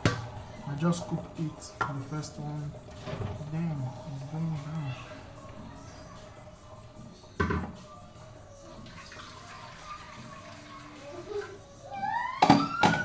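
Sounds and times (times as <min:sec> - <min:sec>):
water pouring into metal pot: 0:08.8 - 0:11.5.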